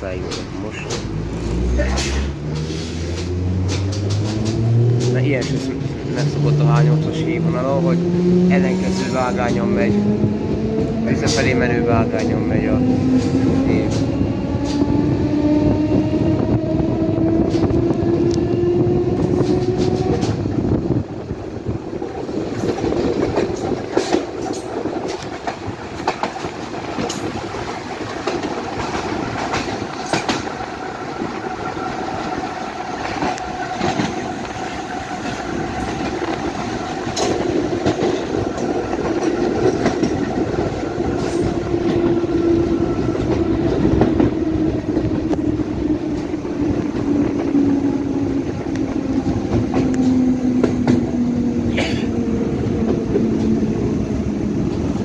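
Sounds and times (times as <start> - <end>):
train rumble: 0.0 - 55.0
wheels clicking over rail joints: 21.8 - 55.0.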